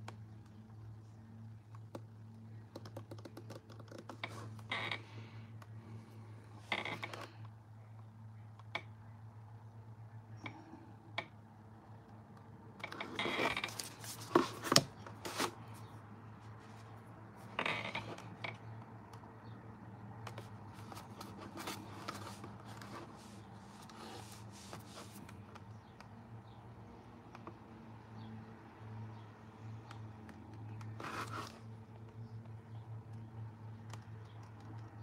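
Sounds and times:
canvas scraping on tabletop: 0:20.8 - 0:25.2, 0:31.0 - 0:31.6.

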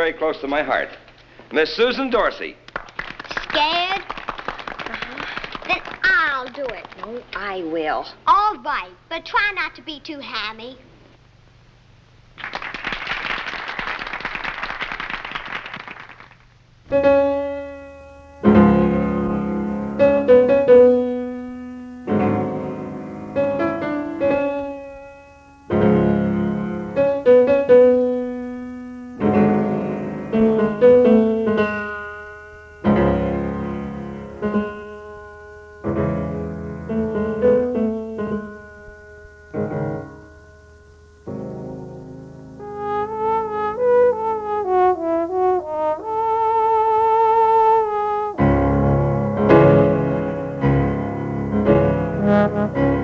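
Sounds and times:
applause: 0:02.7 - 0:07.5, 0:12.4 - 0:16.5
swing piano chords: 0:16.9 - 0:53.0.

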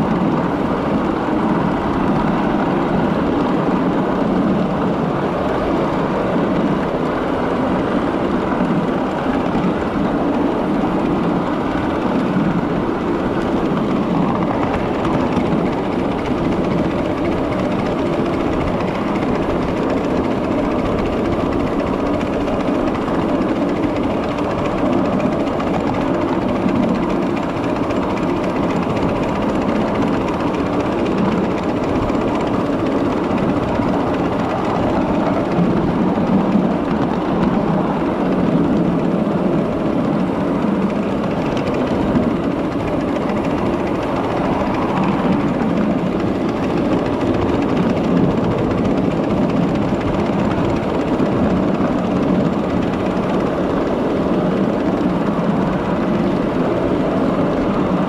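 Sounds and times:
miniature train rumbling on track: 0:00.0 - 0:58.0.

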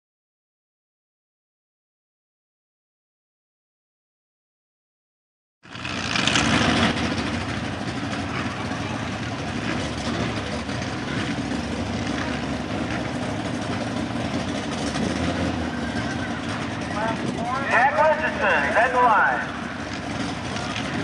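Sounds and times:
distant truck engine running: 0:05.6 - 0:21.0.

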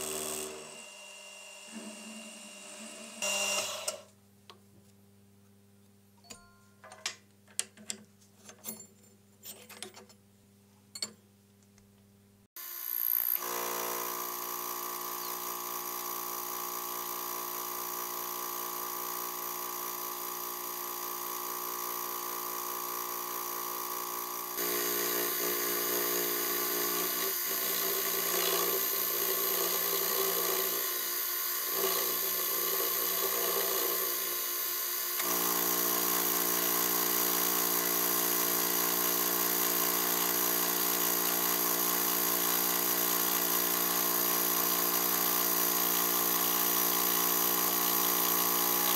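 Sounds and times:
milling machine cutting metal: 0:00.0 - 0:04.0, 0:24.6 - 0:48.9.

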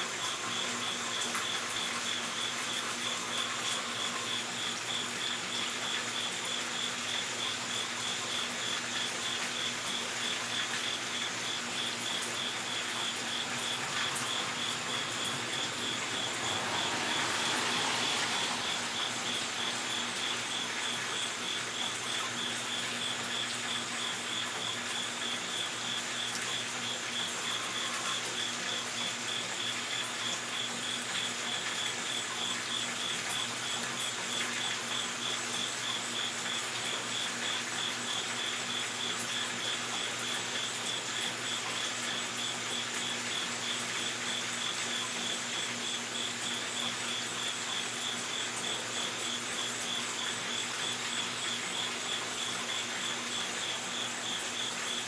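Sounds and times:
cricket chirping trill: 0:10.0 - 0:31.6.

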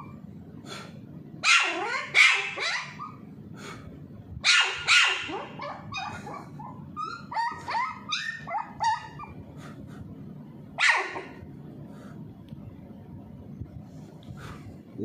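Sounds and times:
puppy barking: 0:01.4 - 0:03.2, 0:04.4 - 0:09.4, 0:10.8 - 0:11.4
puppy yipping: 0:01.4 - 0:03.2, 0:04.4 - 0:09.4, 0:10.8 - 0:11.4.

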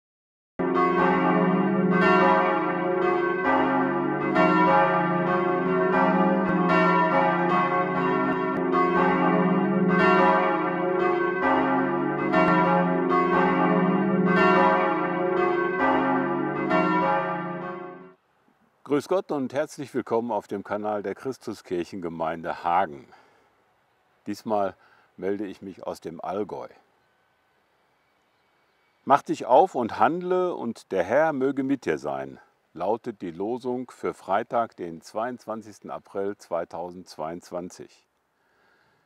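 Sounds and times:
church bells pealing: 0:00.6 - 0:18.1.

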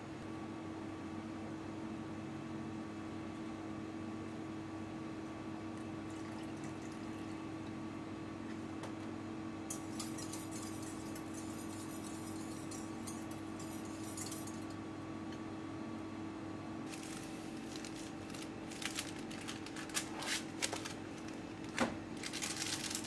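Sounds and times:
steady hum: 0:04.0 - 0:23.0
whisk splashing against steel bowl: 0:09.7 - 0:14.7.

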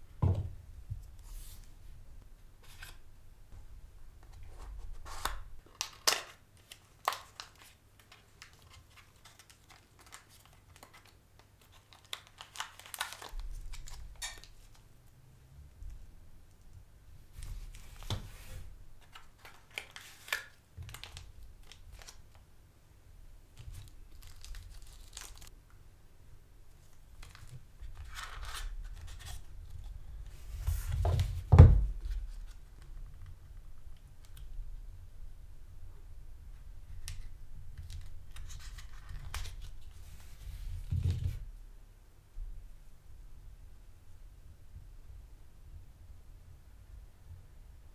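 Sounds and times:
plastic bags crinkling and tearing: 0:05.6 - 0:14.5, 0:23.7 - 0:25.5.

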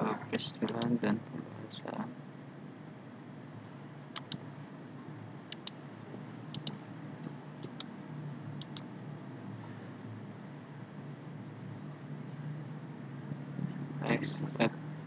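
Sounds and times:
computer mouse clicking: 0:00.6 - 0:01.0, 0:04.2 - 0:04.4, 0:05.5 - 0:05.8, 0:06.5 - 0:06.8, 0:07.6 - 0:07.9, 0:08.6 - 0:08.9.

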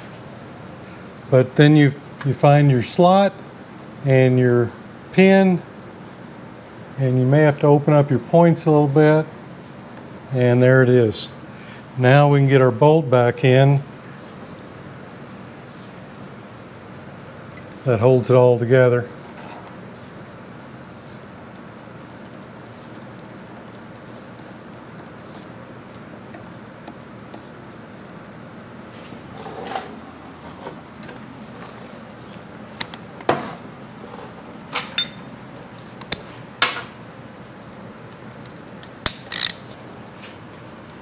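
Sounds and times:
steady shop hiss: 0:00.0 - 0:16.2, 0:39.2 - 0:40.8.

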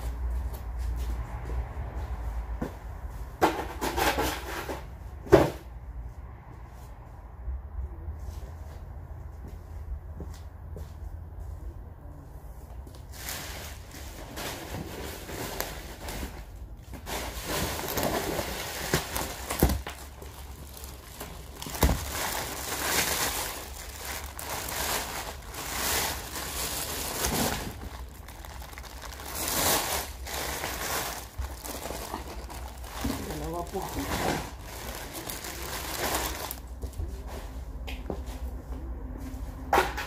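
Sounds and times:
plastic bag rustling: 0:13.1 - 0:36.8.

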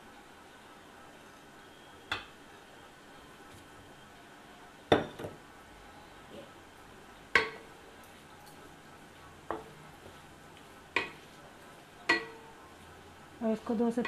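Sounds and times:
cookware clinking on metal pan: 0:12.1 - 0:12.4.

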